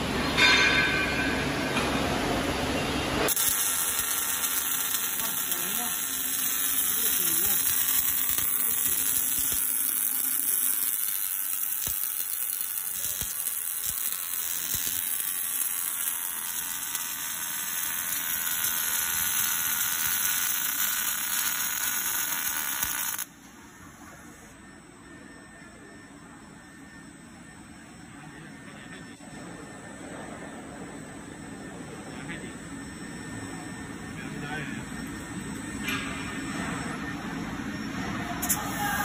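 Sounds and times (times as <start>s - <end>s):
welding arc buzzing: 3.2s - 23.4s.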